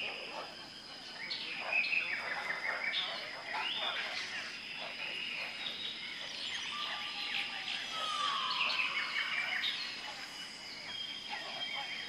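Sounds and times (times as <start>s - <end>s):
high insect drone: 0.0s - 12.0s
birds chirping and whistling: 5.1s - 10.1s.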